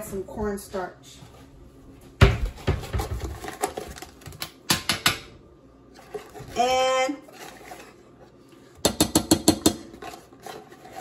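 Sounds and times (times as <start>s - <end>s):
kitchen containers clicking and knocking: 2.2s - 5.3s, 8.8s - 11.0s.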